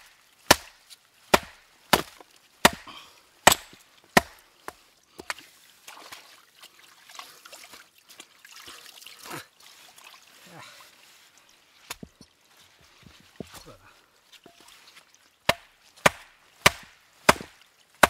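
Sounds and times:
hammer striking rock: 0.5 - 5.4, 15.5 - 17.6.

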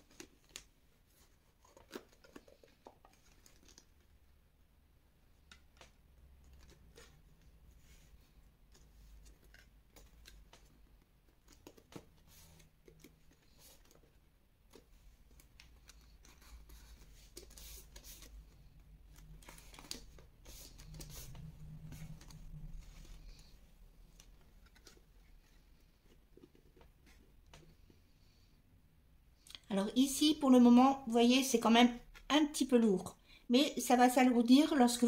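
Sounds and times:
cardstock rustling and tapping: 0.0 - 4.1, 5.3 - 23.5.

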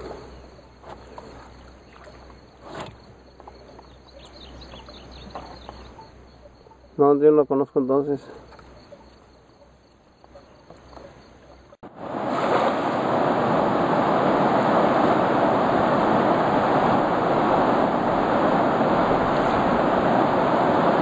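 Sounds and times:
faint insect chirring: 0.0 - 11.8
river water rushing over rocks: 11.9 - 21.0.

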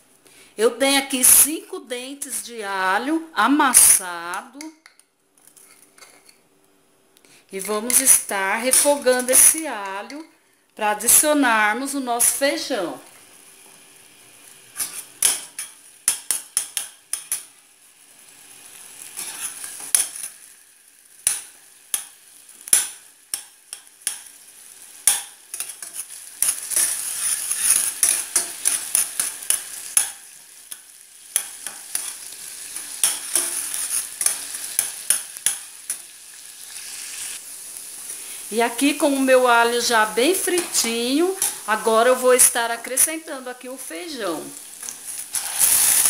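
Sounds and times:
metal spoon scraping a pan: 4.8 - 6.4, 14.7 - 17.6, 19.0 - 20.5, 21.2 - 37.4, 40.4 - 41.7, 44.6 - 46.0
garlic sizzling in oil: 7.5 - 10.3, 11.0 - 46.0.

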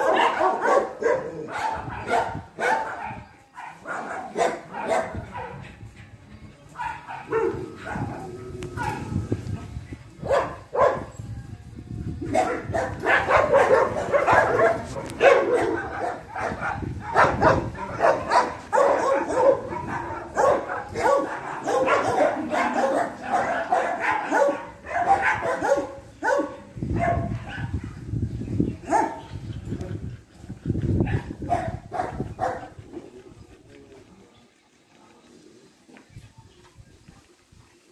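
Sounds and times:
dogs barking and yipping: 0.0 - 6.0, 6.8 - 9.2, 10.2 - 11.2, 12.2 - 28.1, 28.7 - 32.8.

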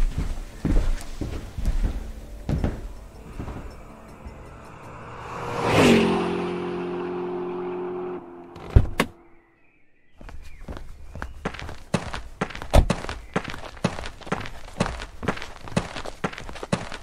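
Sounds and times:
faint footsteps: 0.0 - 4.4, 10.2 - 17.0
car doors shutting: 8.5 - 9.2.

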